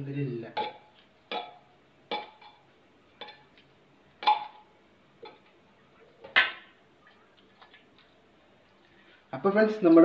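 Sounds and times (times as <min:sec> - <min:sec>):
spoon knocking on metal pot: 0:00.6 - 0:02.6, 0:04.2 - 0:05.4.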